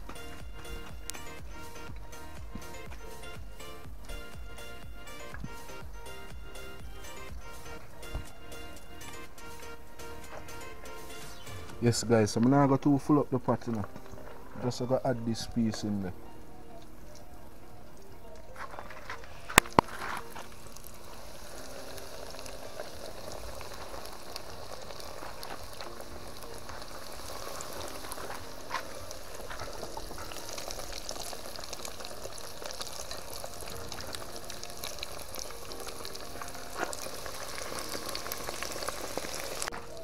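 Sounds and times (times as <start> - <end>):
fish deep-frying in oil: 19.6 - 40.0.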